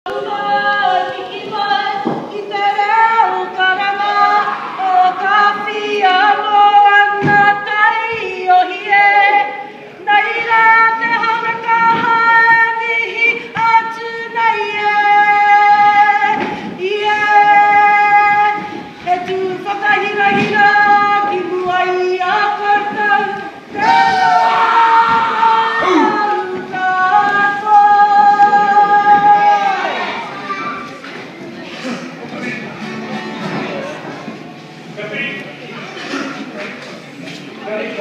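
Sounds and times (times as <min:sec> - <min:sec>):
group singing in long held notes: 0:00.1 - 0:30.3
women's voices singing: 0:00.1 - 0:30.4.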